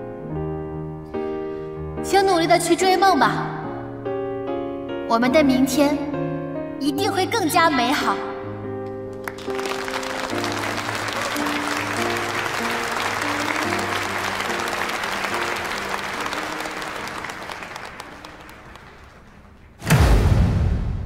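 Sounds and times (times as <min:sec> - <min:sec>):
soft background music: 0:00.0 - 0:18.8
audience applauding: 0:09.1 - 0:19.8.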